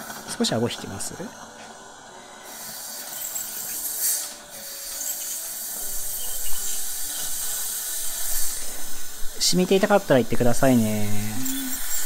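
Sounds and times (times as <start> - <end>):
dental scaler water spray hiss: 2.4 - 12.0.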